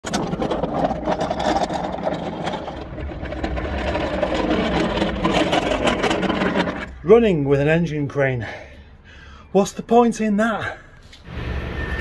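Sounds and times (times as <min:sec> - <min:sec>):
castor wheels rattling over rough ground: 0:00.0 - 0:07.0.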